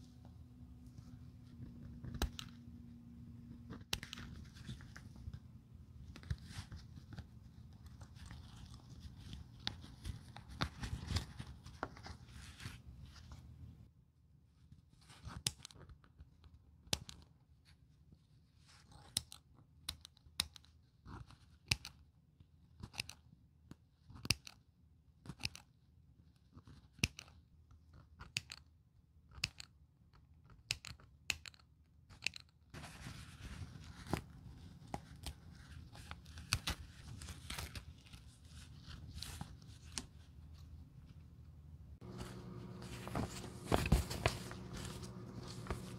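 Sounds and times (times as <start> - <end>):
scissors snipping thread: 19.0 - 22.0, 22.8 - 23.3, 24.1 - 24.6, 25.2 - 25.7, 28.0 - 29.8
fabric rustling: 42.0 - 45.9.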